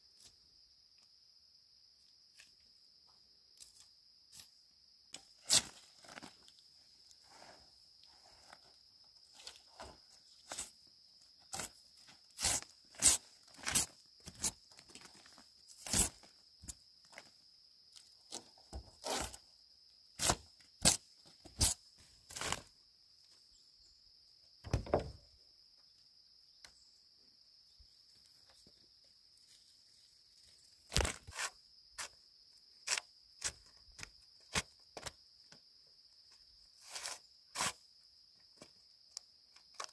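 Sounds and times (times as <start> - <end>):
insects chirring: 0.0 - 39.9
sharp knocks and crunches: 24.6 - 25.2.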